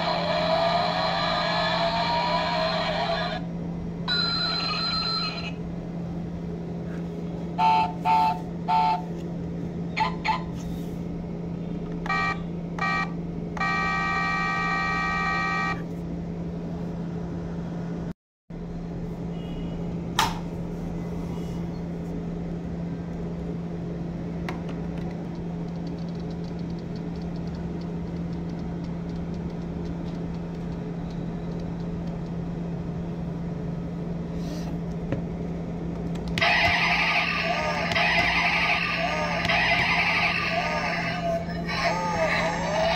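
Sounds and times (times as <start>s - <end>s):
steady low hum: 0.0s - 42.9s
toy horn beeps from small speaker: 12.1s - 15.8s
loud rough toy sound: 36.4s - 42.9s.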